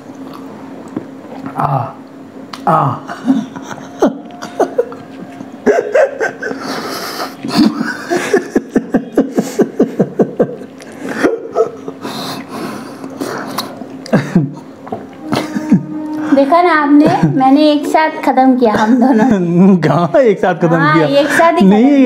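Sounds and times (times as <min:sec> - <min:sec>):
man laughing with mouth full: 0:02.7 - 0:16.2.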